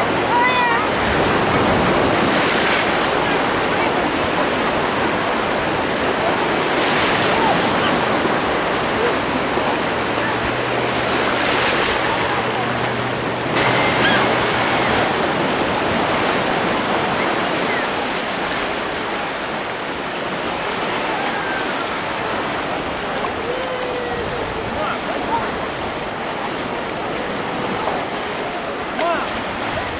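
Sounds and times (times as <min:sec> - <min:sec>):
distant voices: 0:00.0 - 0:29.9
small waves lapping at shore: 0:00.0 - 0:29.9
children calling: 0:07.2 - 0:16.2.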